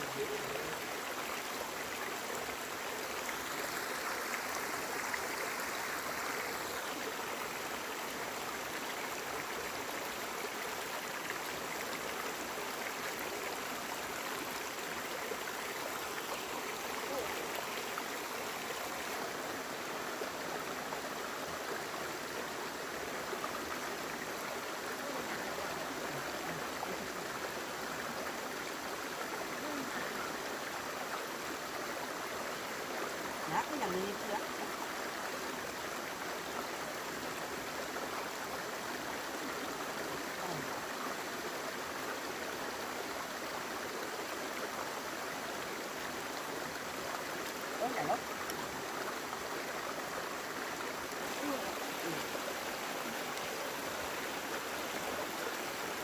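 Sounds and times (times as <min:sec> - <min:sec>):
water rushing in a stream: 0:00.0 - 0:56.0.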